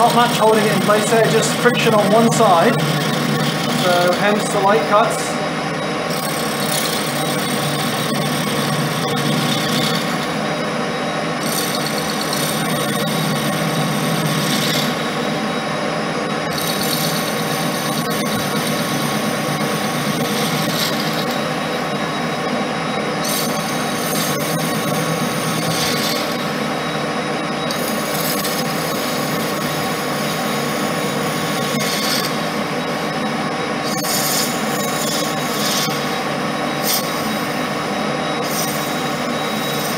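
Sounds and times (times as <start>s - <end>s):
lathe running: 0.0s - 39.9s
hiss of lathe tool cutting: 38.4s - 39.9s.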